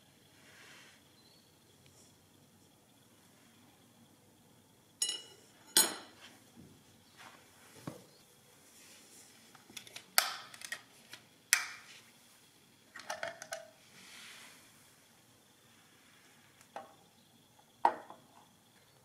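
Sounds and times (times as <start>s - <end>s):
steel rod clinking on tile floor: 5.0s - 6.1s.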